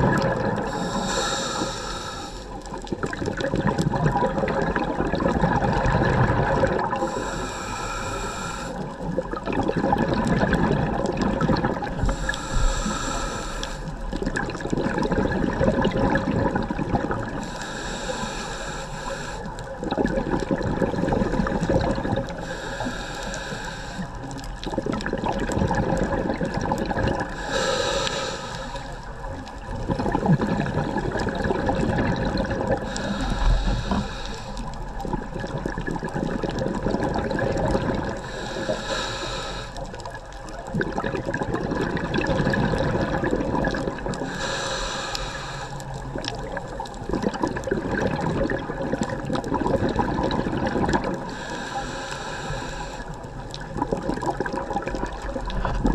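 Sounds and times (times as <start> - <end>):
bubbling exhaust: 0.0 - 18.8, 19.8 - 28.6, 29.3 - 55.9
regulator hissing inhale: 0.6 - 2.7, 6.9 - 9.0, 12.0 - 14.2, 17.3 - 19.8, 22.3 - 24.5, 27.3 - 29.4, 32.7 - 35.0, 38.2 - 40.6, 44.2 - 46.8, 51.1 - 53.6.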